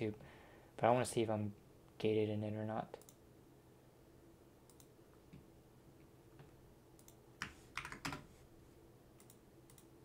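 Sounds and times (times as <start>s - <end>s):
faint steady hum: 0.0s - 10.0s
keyboard keystrokes: 7.0s - 8.2s.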